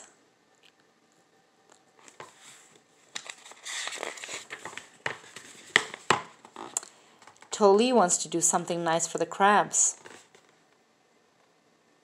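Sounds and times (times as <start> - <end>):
paper pages rustling: 2.0 - 7.5, 10.0 - 10.6.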